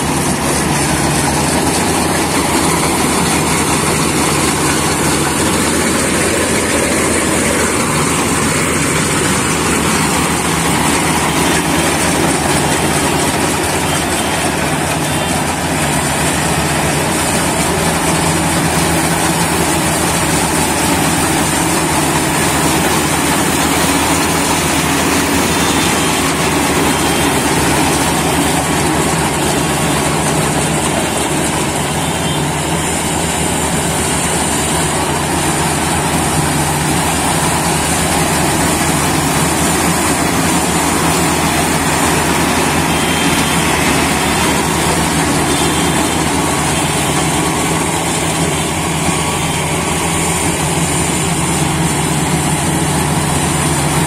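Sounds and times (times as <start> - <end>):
combine harvester running: 0.0 - 54.0.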